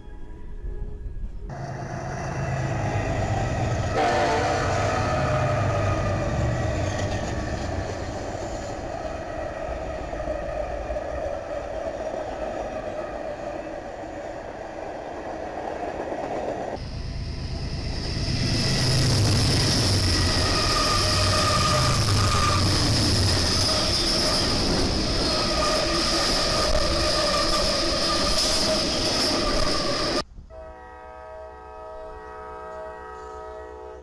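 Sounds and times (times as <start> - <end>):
train horn: 1.5 - 7.0, 30.5 - 34.0
freight cars rolling: 1.5 - 30.2
high-pitched wheel squeal: 19.7 - 30.2.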